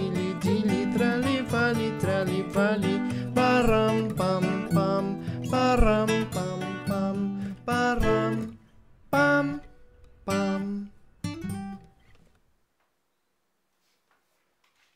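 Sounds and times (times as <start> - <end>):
ringing guitar chords: 0.0 - 12.0
acoustic guitar strumming: 0.0 - 12.2.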